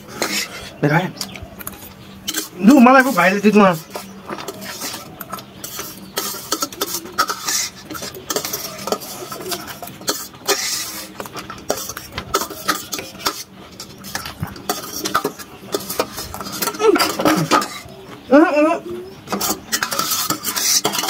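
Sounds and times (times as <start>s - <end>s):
cutlery clinking on metal plates: 0.0s - 18.2s, 19.2s - 21.0s.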